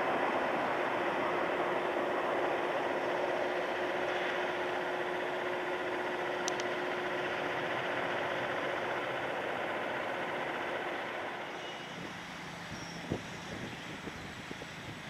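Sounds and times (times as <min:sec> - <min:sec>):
jet engine rushing: 0:10.6 - 0:15.0.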